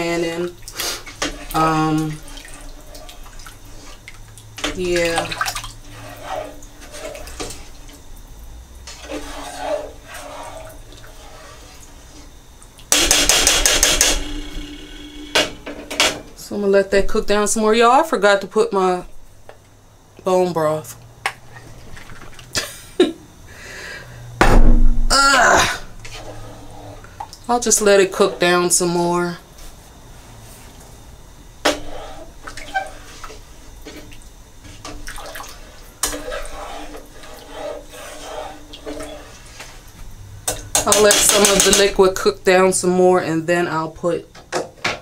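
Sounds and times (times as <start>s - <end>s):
spoon stirring soup: 8.8s - 12.9s, 31.7s - 39.8s
spoon knocking against pot: 40.5s - 41.9s.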